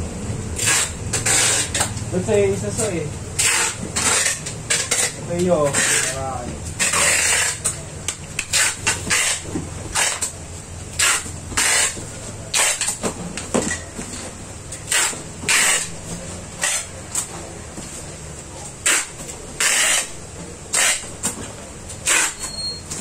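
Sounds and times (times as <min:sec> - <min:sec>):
steady low hum: 0:00.0 - 0:22.2
packing tape ripping off roll: 0:00.6 - 0:02.0, 0:03.4 - 0:06.2, 0:06.8 - 0:07.8, 0:08.4 - 0:10.4, 0:11.0 - 0:13.0, 0:14.8 - 0:16.0, 0:18.8 - 0:21.4, 0:22.0 - 0:22.8.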